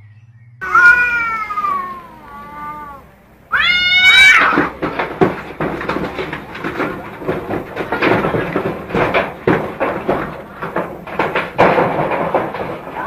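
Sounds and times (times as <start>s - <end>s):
cats scuffling on metal roof: 0.6s - 13.0s.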